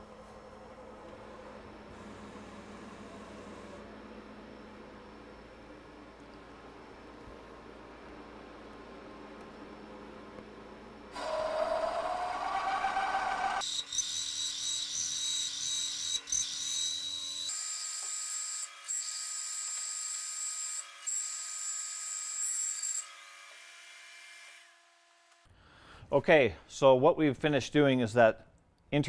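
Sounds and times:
rising whine: 0.0 - 13.6
high-pitched steady squeal: 11.2 - 17.5
drill bit cutting metal: 11.2 - 23.2.

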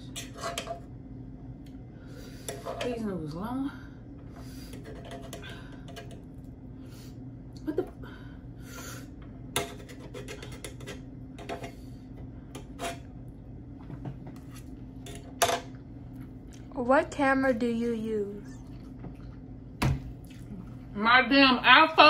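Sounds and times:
fork scraping on griddle: 0.0 - 0.8, 12.6 - 13.1.

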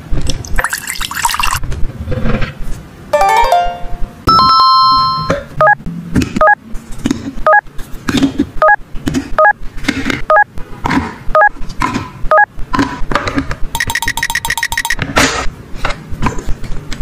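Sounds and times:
falling run of electronic tones: 3.2 - 5.3
held electronic ring: 13.8 - 15.0
short electronic beeps: 13.8 - 15.0.

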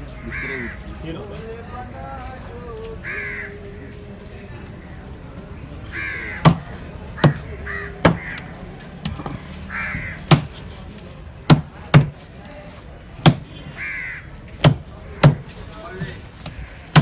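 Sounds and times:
crows cawing: 0.1 - 0.9, 3.0 - 3.8, 5.9 - 8.6, 9.7 - 10.5, 13.7 - 14.5
cleaver chopping on wooden block: 7.2 - 8.4, 10.3 - 10.5, 11.4 - 12.2, 14.6 - 15.4.

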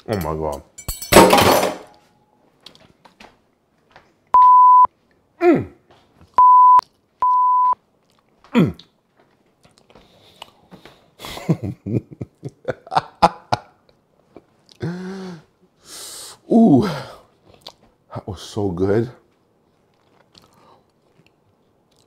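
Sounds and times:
high censor bleeps: 4.4 - 4.9, 6.4 - 7.8
chewing clicks: 19.9 - 22.0.

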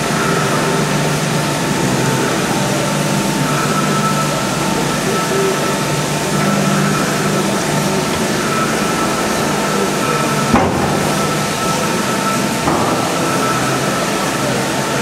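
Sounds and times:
faint steady whine: 0.0 - 15.0
steam hissing: 0.0 - 15.0
sharp clunk: 10.5 - 11.4.

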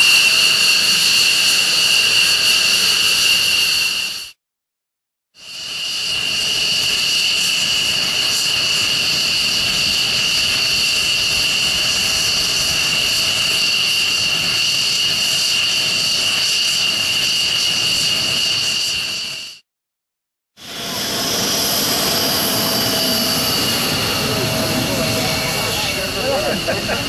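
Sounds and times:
jet engines whining: 0.0 - 4.4, 5.6 - 19.6, 20.6 - 27.0.

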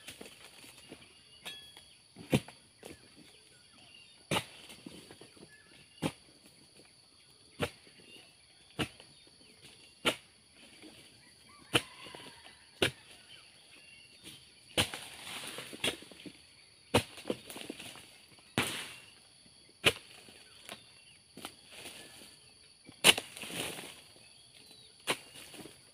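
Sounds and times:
high insect hum: 0.0 - 25.9.

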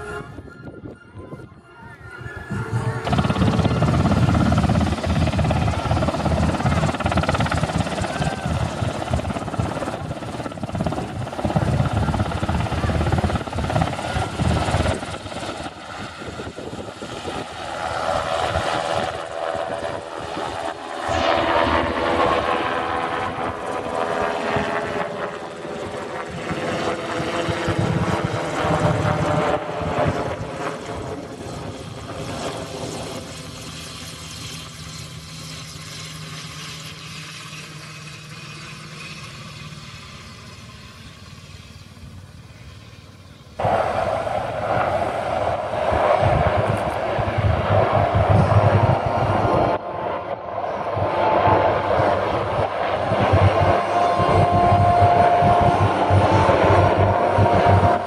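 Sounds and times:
helicopter rotor beat: 0.0 - 58.0
helicopter turbine whine: 0.0 - 58.0.

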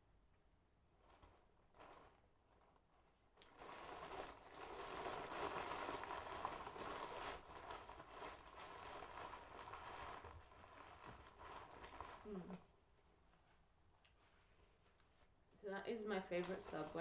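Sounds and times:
wrapper paper rustling: 1.0 - 12.6, 16.2 - 17.0.

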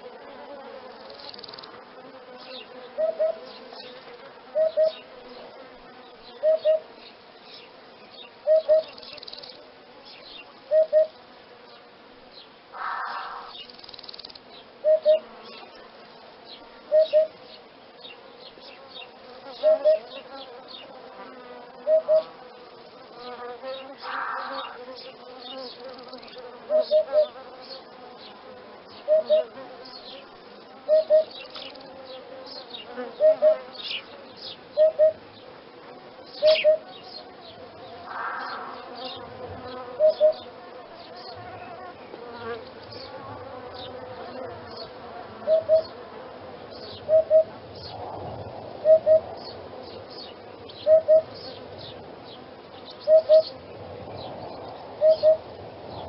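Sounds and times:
high chirps and buzzing: 1.0 - 35.6, 36.2 - 46.0
hoopoe calling: 3.0 - 3.5, 4.5 - 5.0, 6.4 - 6.9, 8.4 - 9.0, 10.7 - 11.2, 12.8 - 13.6, 14.8 - 15.3, 16.9 - 17.4, 19.6 - 20.1, 21.8 - 22.4, 26.7 - 27.4, 29.0 - 29.6, 30.9 - 31.4, 33.1 - 33.7, 34.8 - 35.3, 36.4 - 37.0, 38.0 - 39.2, 39.9 - 40.5, 45.4 - 46.0, 46.9 - 47.6, 48.8 - 49.4, 50.8 - 51.5, 53.0 - 53.6, 55.0 - 55.5.

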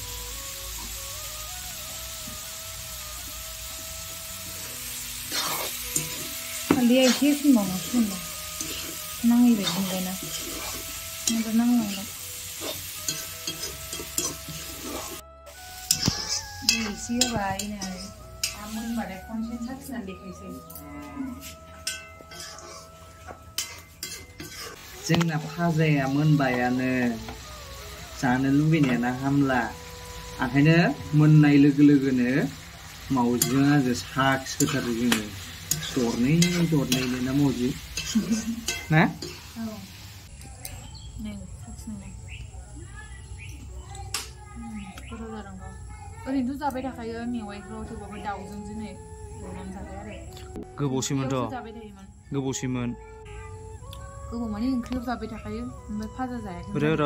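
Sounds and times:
food sizzling: 0.0 - 57.0
metal ladle scraping pan: 4.9 - 15.2, 15.8 - 19.2, 21.3 - 25.4, 32.9 - 39.6.

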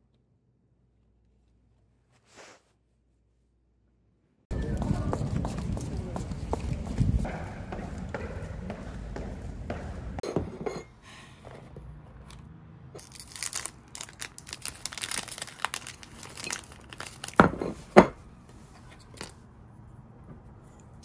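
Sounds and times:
footsteps running: 4.5 - 10.2
foil wrapper crinkling and tearing: 13.0 - 17.6.

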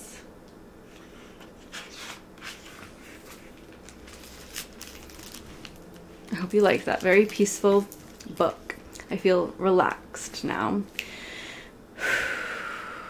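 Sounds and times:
low room hum: 0.0 - 13.0
book rustling: 1.2 - 8.6.

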